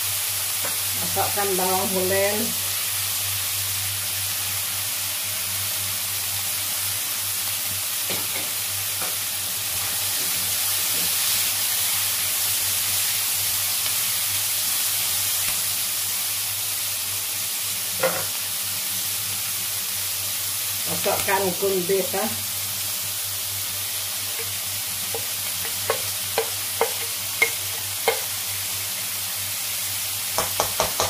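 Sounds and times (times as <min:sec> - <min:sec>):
vegetables sizzling in oil: 0:00.0 - 0:31.0
spatula knock: 0:25.1 - 0:28.3, 0:30.4 - 0:31.0.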